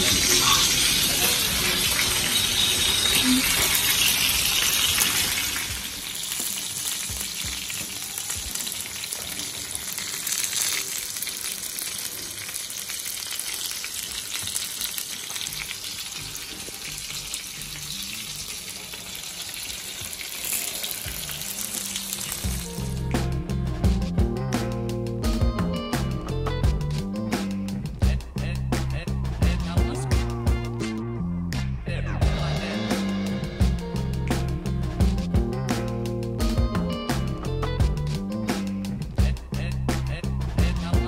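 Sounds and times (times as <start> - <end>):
chicken sizzling in hot oil: 0.0 - 23.0.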